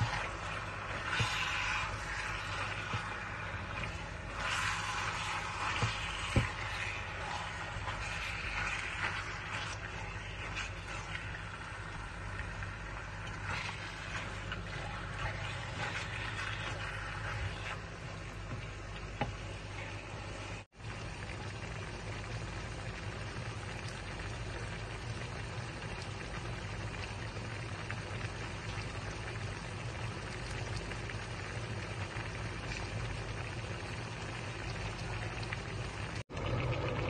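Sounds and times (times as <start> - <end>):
meat and onions sizzling in a pan: 0.0 - 12.8.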